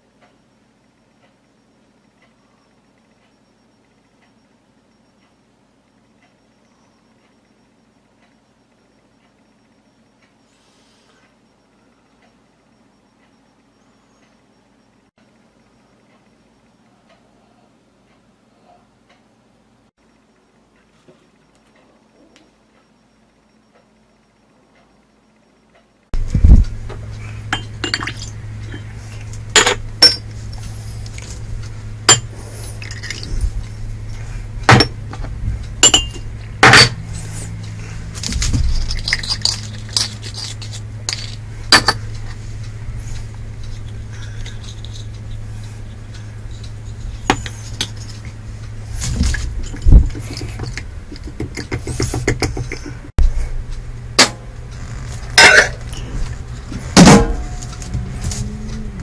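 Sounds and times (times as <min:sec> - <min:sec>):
steady low hum: 0:00.0 - 0:59.0
glass and bottles clinking: 0:27.5 - 0:28.9, 0:29.5 - 0:30.3, 0:32.1 - 0:33.3, 0:35.8 - 0:37.0, 0:55.4 - 0:56.1.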